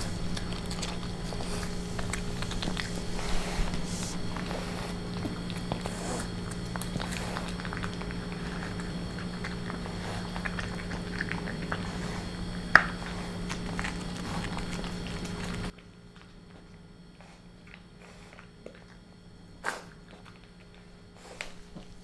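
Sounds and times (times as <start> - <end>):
low hum: 0.0 - 15.8
puppy chewing kibble: 0.0 - 22.0.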